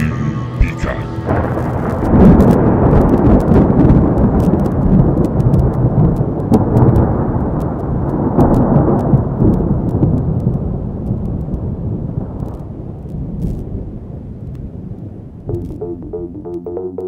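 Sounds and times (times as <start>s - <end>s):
deep rumbling thunder: 1.3s - 15.2s
rain: 1.3s - 15.5s
faint crackles: 1.6s - 13.8s.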